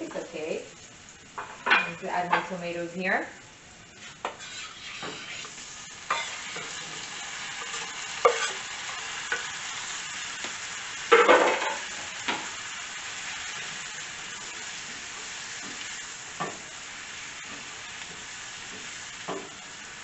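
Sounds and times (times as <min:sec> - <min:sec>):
vegetables sizzling in skillet: 0:00.0 - 0:20.0
spatula stirring and knocking: 0:04.0 - 0:06.7, 0:07.6 - 0:08.6, 0:17.5 - 0:19.6.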